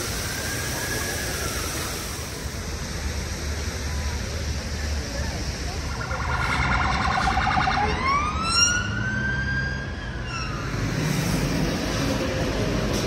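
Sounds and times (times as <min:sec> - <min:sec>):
emergency vehicle siren: 0:00.0 - 0:02.3, 0:05.6 - 0:10.8
traffic noise: 0:00.0 - 0:13.0.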